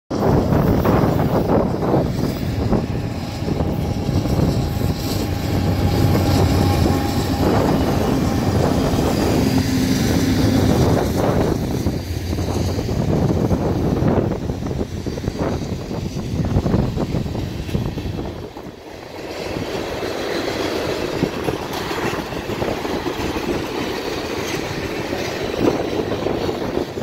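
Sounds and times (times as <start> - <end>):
diesel locomotive engine hum: 0.1 - 27.0
freight cars rolling on rails: 0.1 - 27.0.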